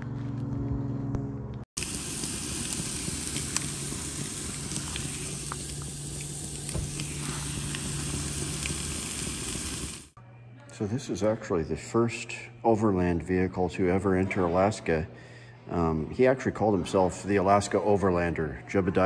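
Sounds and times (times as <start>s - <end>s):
fish and fries sizzling: 1.8s - 10.2s.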